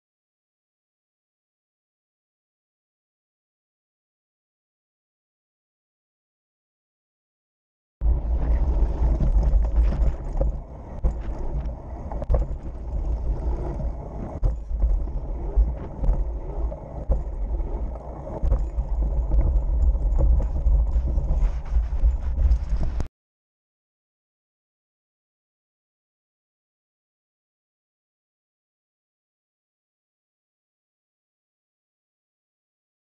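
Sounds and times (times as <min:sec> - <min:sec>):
bike tyres rumbling on dirt: 0:08.0 - 0:23.1
wind on microphone: 0:08.0 - 0:23.1.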